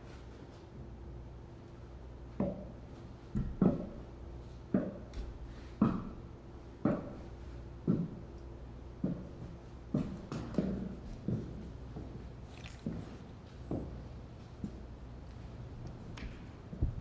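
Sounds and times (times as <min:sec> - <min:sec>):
faint steady hum: 0:00.0 - 0:17.0
footsteps on wooden stairs: 0:04.7 - 0:17.0.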